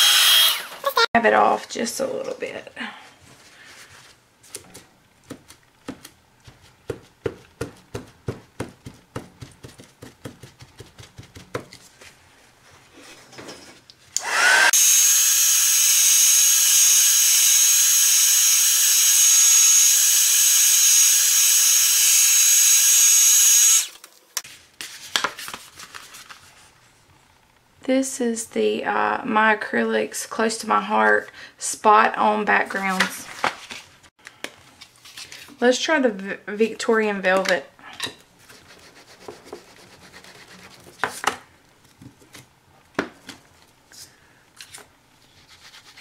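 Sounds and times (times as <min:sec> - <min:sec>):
heat tool whining: 0:00.0 - 0:01.1, 0:14.2 - 0:24.0
paper rustling: 0:24.0 - 0:26.7, 0:32.8 - 0:34.0, 0:34.6 - 0:35.6.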